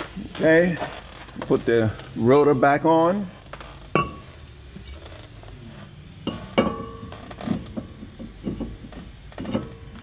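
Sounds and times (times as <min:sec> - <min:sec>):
light metal knocks and scrapes: 0:06.3 - 0:10.0.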